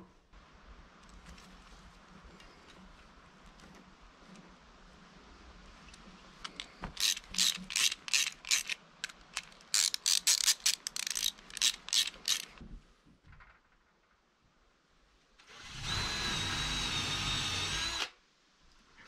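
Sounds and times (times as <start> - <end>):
ratchet wrench clicking: 6.5 - 12.6.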